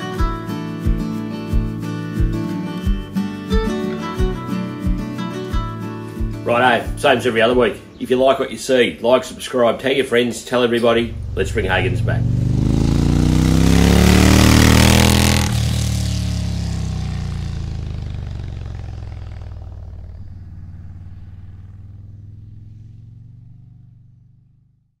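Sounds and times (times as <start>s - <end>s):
motorcycle engine revving: 10.8s - 25.0s.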